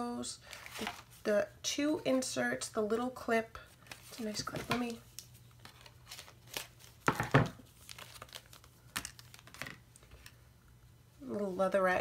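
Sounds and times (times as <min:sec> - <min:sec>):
plastic packaging crinkling: 0:00.5 - 0:01.2, 0:03.8 - 0:10.4.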